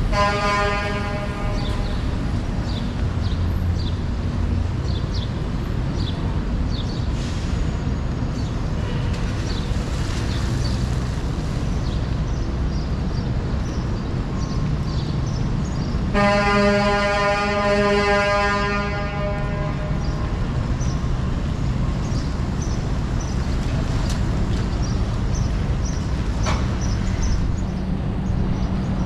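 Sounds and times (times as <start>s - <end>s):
street traffic noise: 0.0s - 29.0s
vehicle horn blast: 0.1s - 1.9s, 16.2s - 20.0s.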